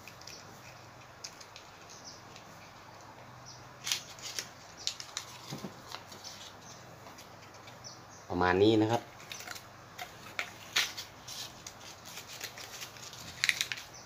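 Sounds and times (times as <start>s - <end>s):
paper liners crinkling: 3.8s - 7.8s, 9.1s - 14.0s
sharp paper crackles: 3.8s - 7.8s, 9.1s - 14.0s.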